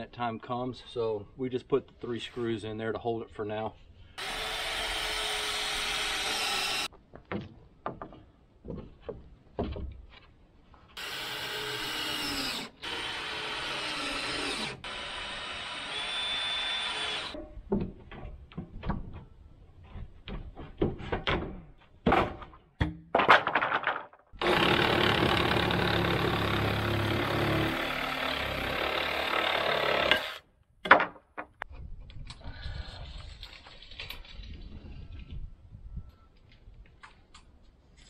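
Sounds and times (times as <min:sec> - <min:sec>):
power drill driving screws: 0:04.2 - 0:06.9, 0:11.0 - 0:17.4, 0:24.4 - 0:30.4.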